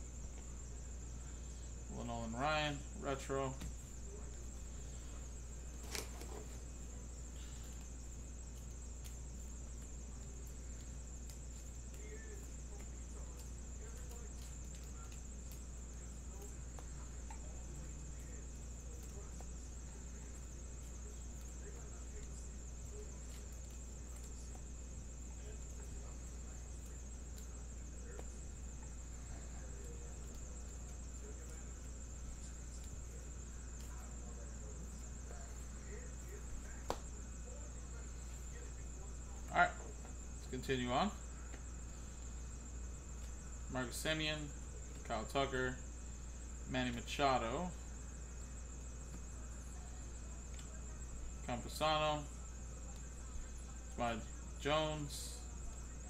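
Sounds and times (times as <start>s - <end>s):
low mains hum: 0.0s - 56.0s
cards clicking and sliding: 5.8s - 6.6s.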